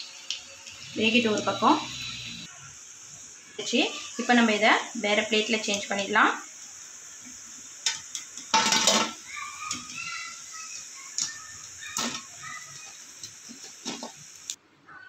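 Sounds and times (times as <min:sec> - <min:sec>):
fritters sizzling in hot oil: 0:00.0 - 0:14.6.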